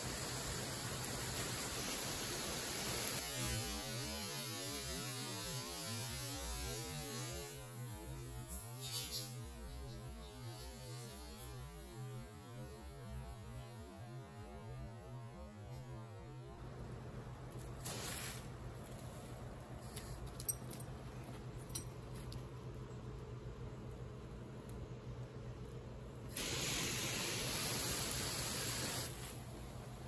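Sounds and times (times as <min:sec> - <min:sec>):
water spray hissing: 0:00.0 - 0:07.2, 0:17.8 - 0:18.6, 0:26.3 - 0:29.8.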